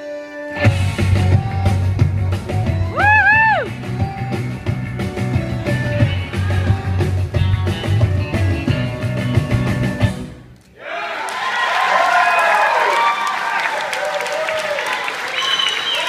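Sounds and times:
rock music over sound system: 0.3 - 10.5.

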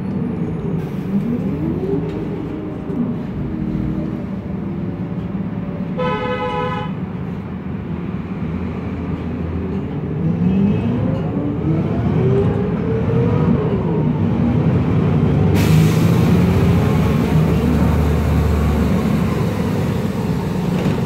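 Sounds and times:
bus engine and gearbox whine: 0.0 - 6.2, 7.0 - 21.0.

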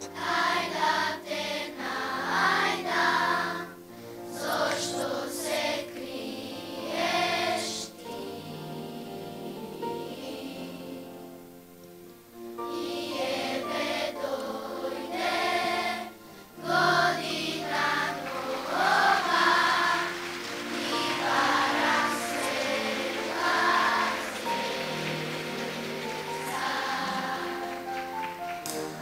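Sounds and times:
children's choir singing: 0.0 - 11.5, 12.6 - 29.0
instrumental accompaniment: 6.8 - 29.0.

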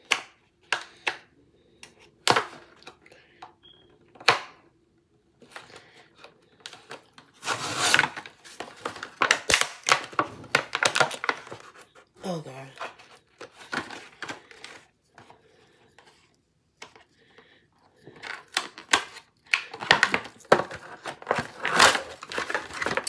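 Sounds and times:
plastic packaging clicks and snaps: 0.0 - 3.0, 8.0 - 11.6, 18.1 - 23.0
cardboard tearing and crinkling: 7.3 - 11.8, 18.2 - 23.0.

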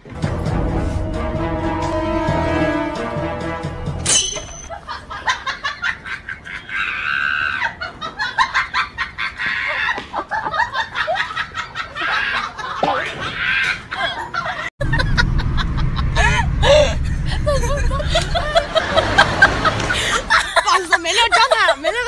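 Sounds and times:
music: 0.0 - 4.1.

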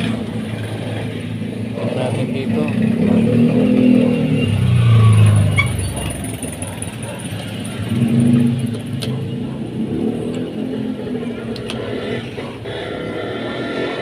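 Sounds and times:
vehicle engine droning: 0.0 - 14.0.

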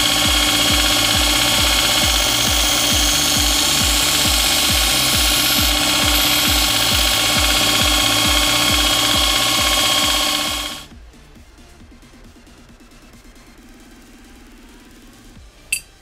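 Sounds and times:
belt sander grinding metal: 0.0 - 10.9
electronic dance music: 0.0 - 16.0.

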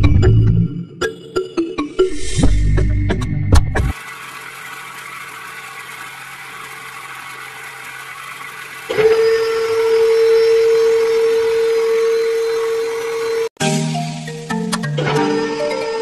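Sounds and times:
music: 0.0 - 4.0, 13.6 - 16.0
small motor whining: 3.9 - 13.5.

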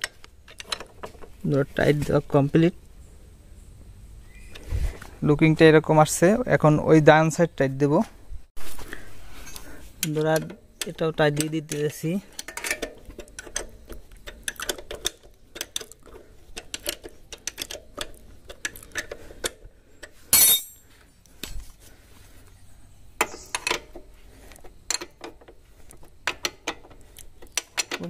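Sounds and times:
spanner clicking on a bolt: 10.0 - 20.7, 24.9 - 28.0.

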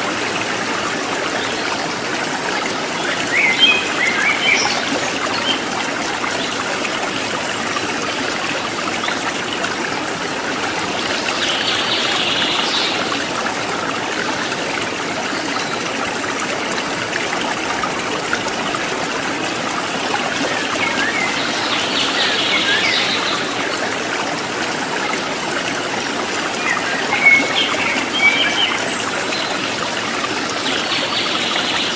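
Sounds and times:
stream running: 0.0 - 31.9
birds chirping: 20.5 - 23.7, 26.5 - 30.0.

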